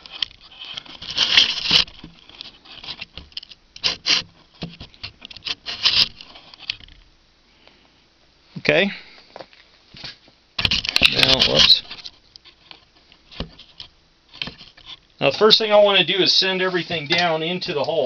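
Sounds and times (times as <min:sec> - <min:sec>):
clothing rustling against camera: 0:09.3 - 0:15.9.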